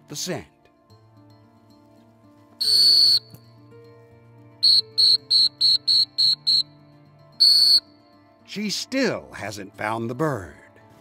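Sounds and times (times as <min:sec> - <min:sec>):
dog whistle blasts: 0:02.6 - 0:03.4, 0:04.6 - 0:06.7, 0:07.4 - 0:07.9
short whistle toots: 0:02.6 - 0:03.4, 0:04.6 - 0:06.8, 0:07.4 - 0:07.9.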